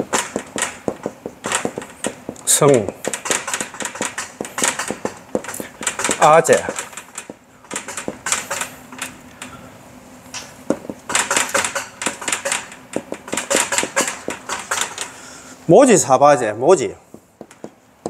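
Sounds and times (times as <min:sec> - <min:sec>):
marker writing on whiteboard: 0:00.0 - 0:08.8, 0:17.0 - 0:18.0.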